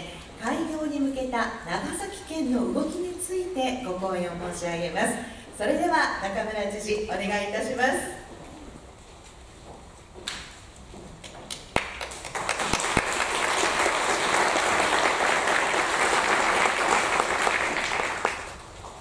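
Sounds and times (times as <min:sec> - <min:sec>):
audience applauding: 0:11.7 - 0:18.8.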